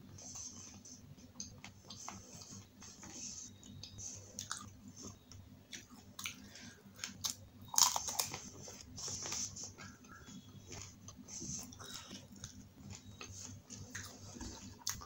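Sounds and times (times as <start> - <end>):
crackly chewing: 3.6 - 15.0
crisp shell crunching in mouth: 7.2 - 8.4.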